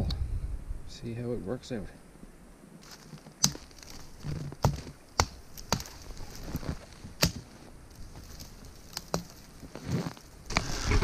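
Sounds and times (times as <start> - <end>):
dry twigs snapping: 2.8 - 10.7.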